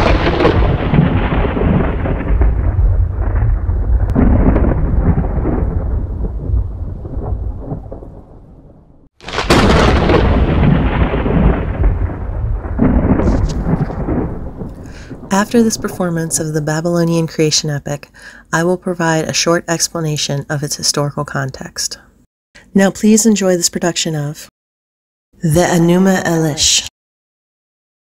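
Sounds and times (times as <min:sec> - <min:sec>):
loud thunderclap: 0:00.0 - 0:16.8
rolling thunder rumble: 0:00.0 - 0:16.8.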